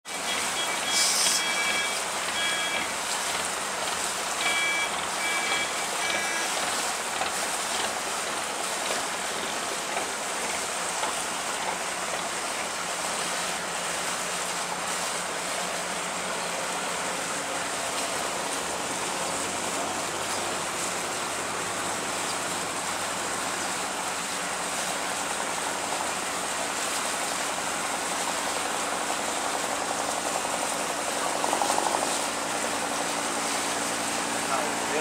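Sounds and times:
water rushing along hull: 0.1s - 35.0s
short high chirps: 0.2s - 2.9s.

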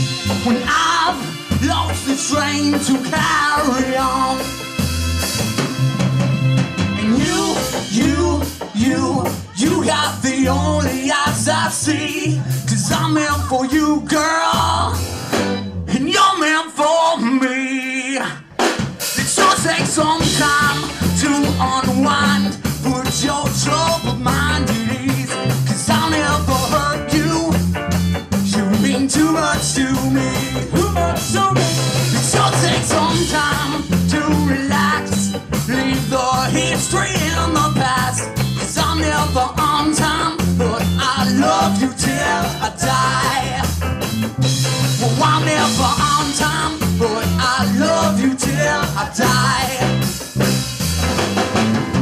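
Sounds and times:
drum kit beat: 0.0s - 17.2s, 18.2s - 52.0s
bass line: 0.0s - 52.0s
electric guitar: 18.2s - 52.0s.

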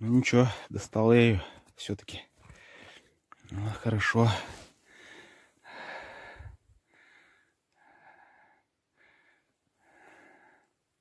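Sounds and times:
man breathing hard: 2.4s - 3.2s, 4.3s - 10.8s.

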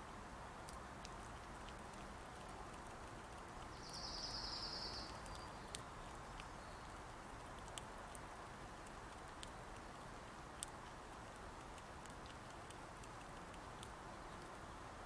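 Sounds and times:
low outdoor background: 0.0s - 15.0s
squirrel cracking and chewing seeds: 0.0s - 15.0s
buzzy bird trill: 3.8s - 5.5s.

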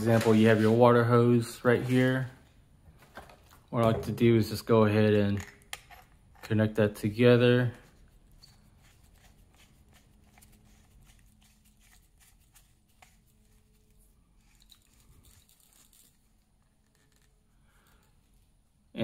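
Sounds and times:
hose fittings clicking and rubbing: 14.4s - 18.1s.

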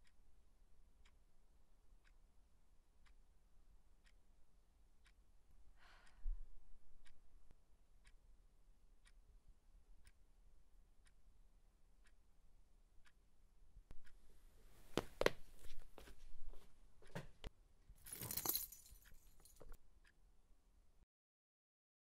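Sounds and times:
alarm clock ticking: 0.9s - 6.2s, 7.0s - 14.3s
rustling handling noises: 18.1s - 19.8s.

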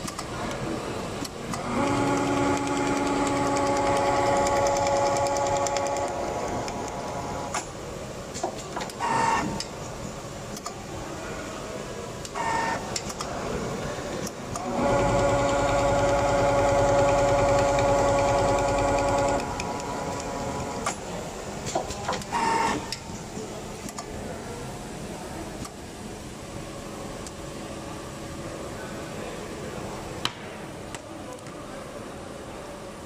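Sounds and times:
sharp machine clicks: 1.5s - 7.7s, 14.5s - 21.0s
sewing machine humming: 1.6s - 7.6s, 14.6s - 20.9s.

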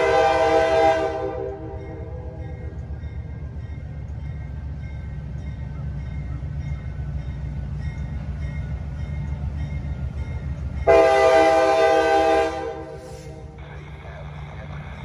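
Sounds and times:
train air horn: 0.0s - 2.4s, 10.9s - 13.6s
diesel locomotive rumbling: 0.0s - 15.0s.

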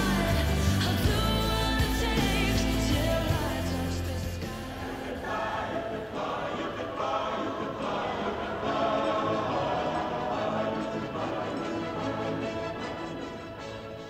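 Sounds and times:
heavy bass: 0.0s - 5.2s
music with sung voices: 0.0s - 14.0s.

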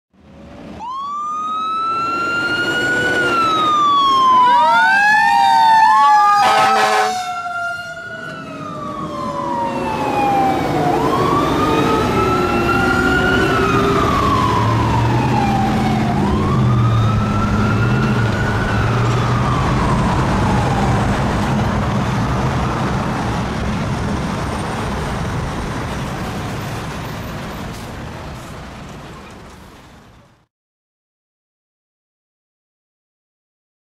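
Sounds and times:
truck engine rumbling: 0.2s - 30.5s
air horn blasts: 6.4s - 7.4s.

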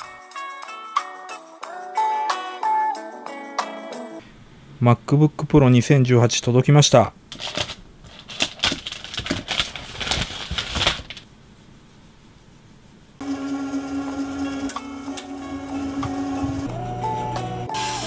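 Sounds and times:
plastic wrap crinkling: 7.3s - 11.3s
background music with low tone: 13.2s - 18.0s.

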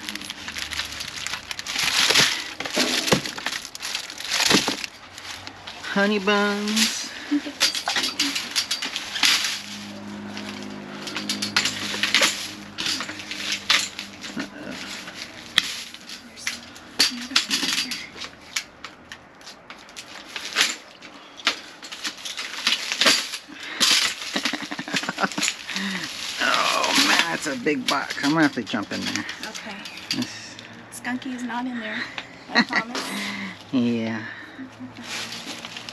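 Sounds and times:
plastic packaging crinkling: 0.0s - 30.2s, 35.0s - 35.9s
grabber tool clicks and clinks: 6.6s - 20.8s.

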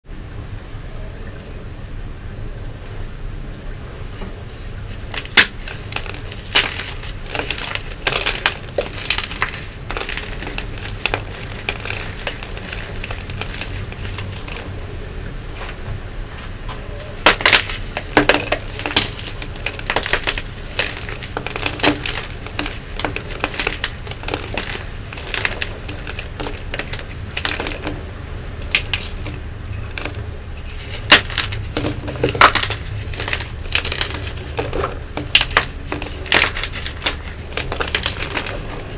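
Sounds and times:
chalk blocks crunching: 4.1s - 14.7s, 16.8s - 38.9s.

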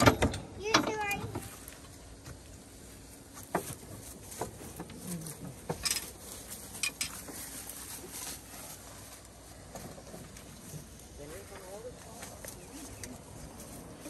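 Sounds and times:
metal tools clinking: 5.7s - 7.4s.

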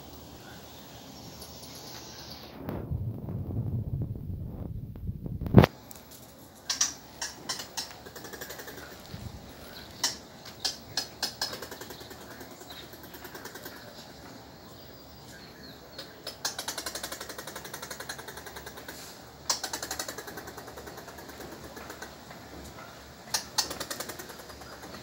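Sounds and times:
squirrel chattering: 6.6s - 14.1s, 15.6s - 22.3s, 23.2s - 25.0s.

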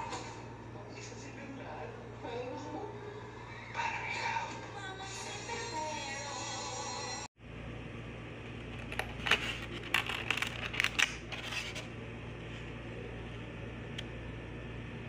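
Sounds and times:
room hum: 0.0s - 15.0s
foam container clicking and creaking: 8.6s - 11.9s.

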